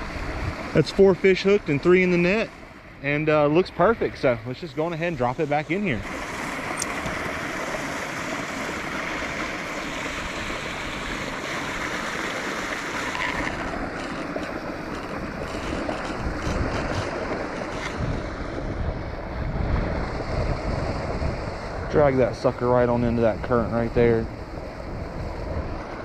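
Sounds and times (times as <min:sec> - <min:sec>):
creek water rushing over rocks: 0:00.0 - 0:18.8
wind buffeting microphone: 0:00.0 - 0:26.0.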